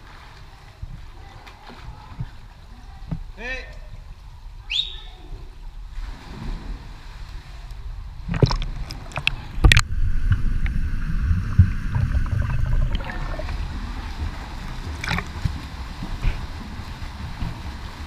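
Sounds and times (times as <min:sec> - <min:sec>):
water splashes: 0:00.0 - 0:18.0
muffled underwater rumble: 0:06.7 - 0:18.0.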